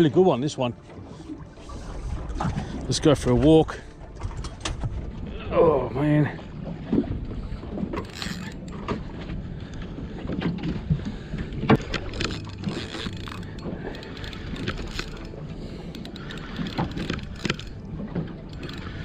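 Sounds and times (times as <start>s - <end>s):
fishing reel being cranked: 7.9s - 9.0s, 11.7s - 17.9s, 18.5s - 19.0s.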